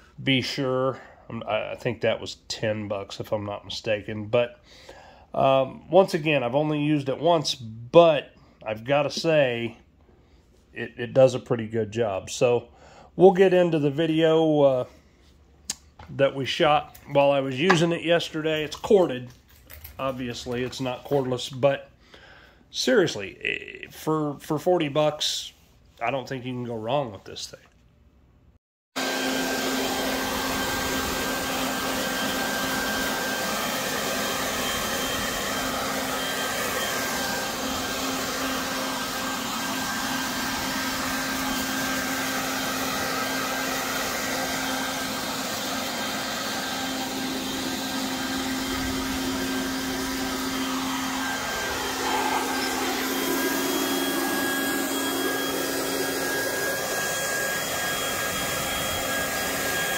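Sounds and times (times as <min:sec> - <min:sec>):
leaf blower motor hum: 0:29.0 - 0:59.9.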